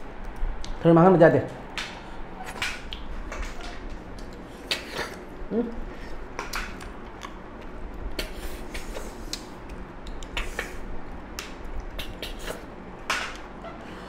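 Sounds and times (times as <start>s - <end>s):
chewing smacks and sucking: 4.1s - 5.3s, 5.9s - 10.9s, 11.6s - 12.7s.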